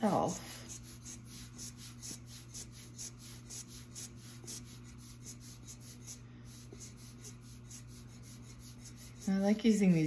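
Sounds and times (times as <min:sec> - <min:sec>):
rubber bulb blower puffing air: 0:00.1 - 0:09.6.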